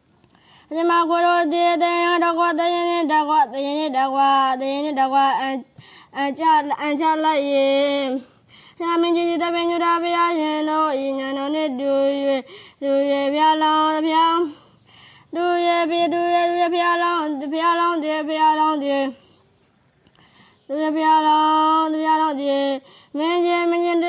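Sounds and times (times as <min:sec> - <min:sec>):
person breathing: 0:00.3 - 0:00.7, 0:05.7 - 0:06.2, 0:08.2 - 0:08.8, 0:12.4 - 0:12.8, 0:14.5 - 0:15.3, 0:20.1 - 0:20.7, 0:22.8 - 0:23.2.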